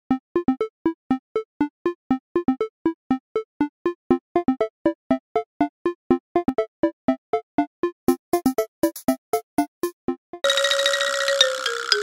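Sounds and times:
playful staccato background music: 0:07.8 - 0:12.0.

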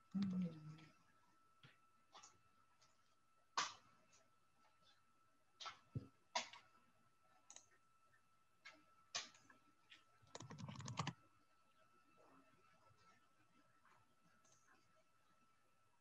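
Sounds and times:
faint high tone: 0:00.1 - 0:00.9
keyboard typing clicks: 0:10.3 - 0:11.2.

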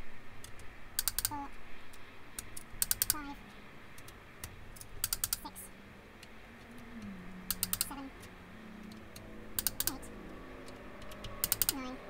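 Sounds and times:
torque wrench clicking: 0:00.4 - 0:01.3, 0:02.4 - 0:03.2, 0:04.0 - 0:05.4, 0:07.5 - 0:07.9, 0:09.6 - 0:09.9, 0:11.0 - 0:11.8.

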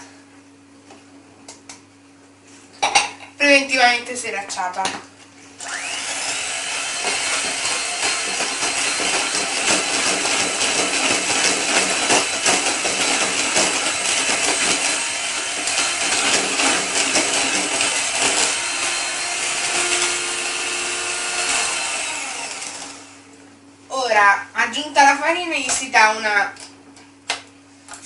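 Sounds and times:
electric hand mixer whine: 0:05.6 - 0:23.3.

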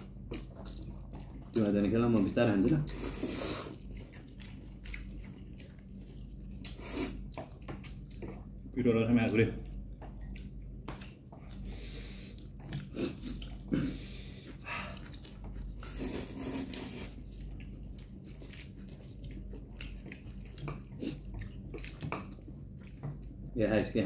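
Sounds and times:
people chewing noodles: 0:00.0 - 0:24.0
steady low hum: 0:00.0 - 0:24.0
breathing: 0:11.6 - 0:12.4, 0:13.8 - 0:15.0.

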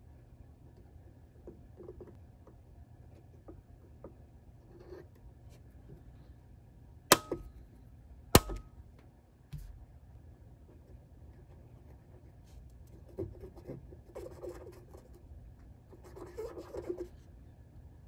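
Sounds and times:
light taps and handling noises: 0:08.4 - 0:09.9.

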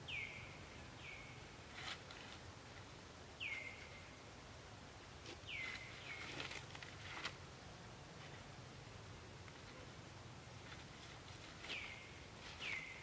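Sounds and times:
dry leaves rustling: 0:05.5 - 0:07.4, 0:10.6 - 0:13.0.

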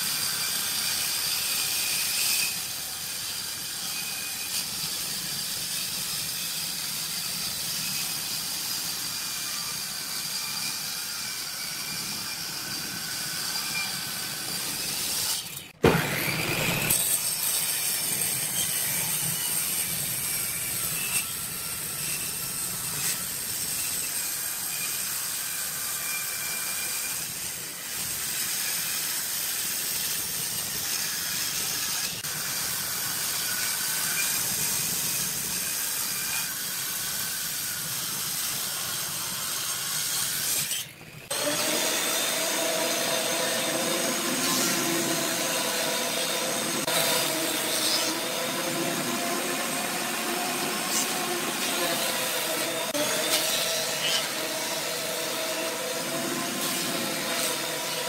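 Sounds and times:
wood lathe cutting wood: 0:41.3 - 0:58.0.

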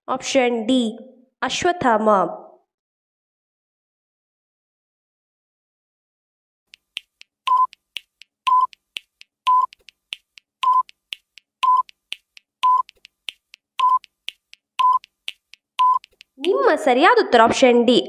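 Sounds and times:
faint ticks: 0:06.7 - 0:16.6
short mid-pitched beeps: 0:07.5 - 0:07.8, 0:08.5 - 0:08.8, 0:09.5 - 0:09.8, 0:10.6 - 0:11.0, 0:11.6 - 0:12.0, 0:12.6 - 0:13.0, 0:13.8 - 0:14.1, 0:14.8 - 0:15.1, 0:15.8 - 0:16.2.

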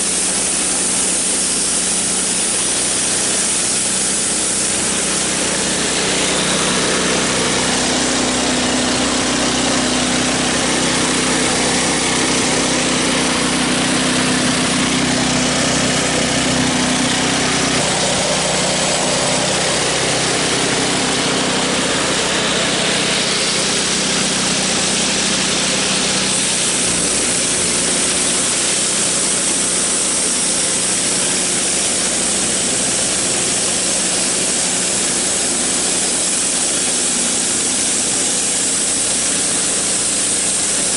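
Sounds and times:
high hiss: 0:00.0 - 0:08.2, 0:17.6 - 0:40.9
band saw blade cutting log: 0:00.0 - 0:40.9
engine running steadily: 0:00.0 - 0:40.9.

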